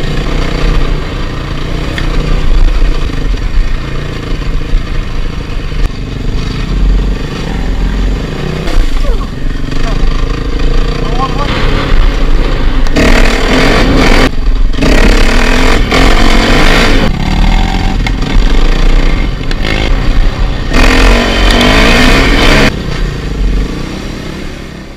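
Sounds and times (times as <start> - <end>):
dirt bike engine revving: 0.0 - 24.8.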